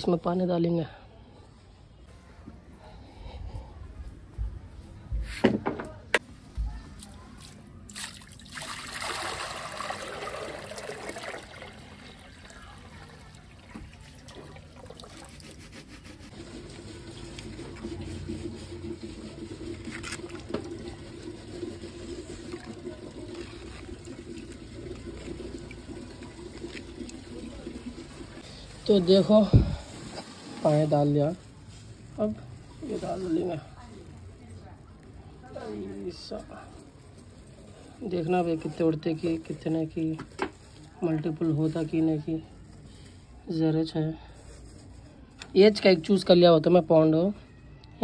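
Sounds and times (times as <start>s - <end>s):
water pouring into tank: 7.9s - 15.4s, 17.4s - 28.4s.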